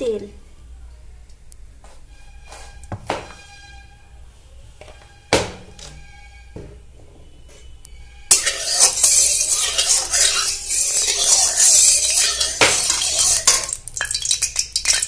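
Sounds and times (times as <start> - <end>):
spatula scraping metal pan: 8.2 - 15.0.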